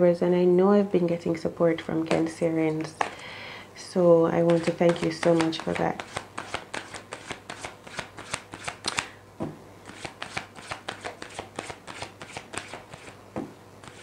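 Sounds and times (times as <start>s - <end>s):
cards being shuffled by hand: 4.4s - 9.1s, 9.8s - 13.2s.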